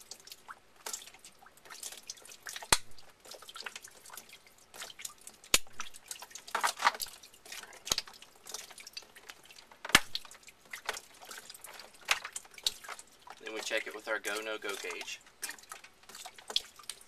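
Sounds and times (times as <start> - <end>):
water dripping: 0.0 - 17.0.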